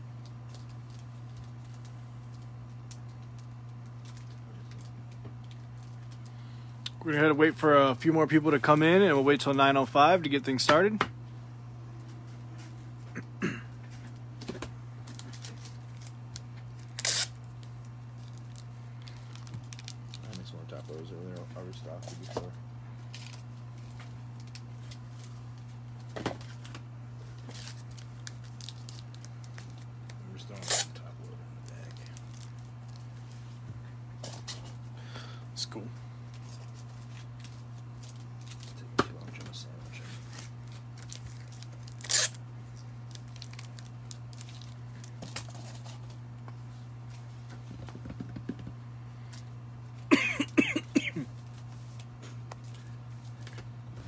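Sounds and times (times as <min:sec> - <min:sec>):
steady low hum: 0:00.0 - 0:54.0
person coughing: 0:13.1 - 0:13.8, 0:50.1 - 0:51.3.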